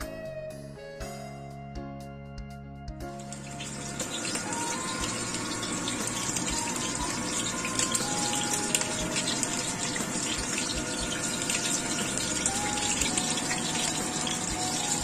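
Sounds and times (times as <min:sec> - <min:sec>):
oil popping and crackling: 0:03.2 - 0:15.0
oil sizzling in a wok: 0:03.2 - 0:15.0.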